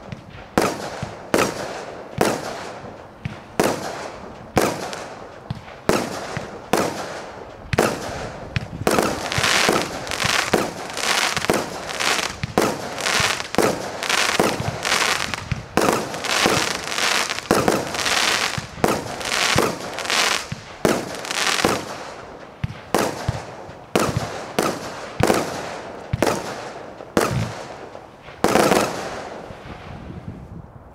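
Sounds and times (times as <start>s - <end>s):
firework launches and bursting shells: 3.3s - 30.1s
firework hiss: 8.9s - 22.2s.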